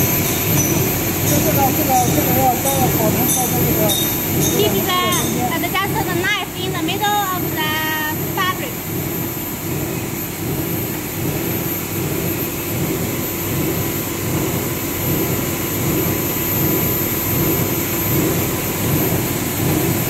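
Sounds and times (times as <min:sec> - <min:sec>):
thin high whine: 0:00.0 - 0:13.1
machine running: 0:00.0 - 0:20.0.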